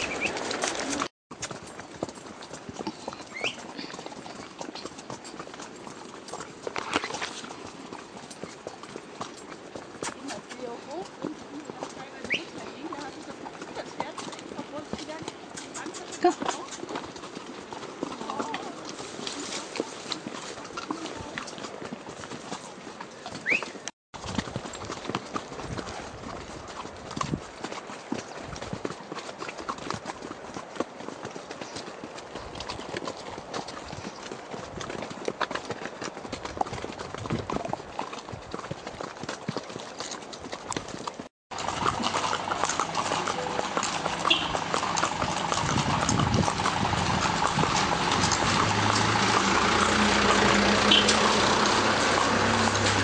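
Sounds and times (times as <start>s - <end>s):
horse hooves clip-clopping: 0.0s - 53.0s
engine humming: 41.5s - 45.8s, 46.5s - 53.0s.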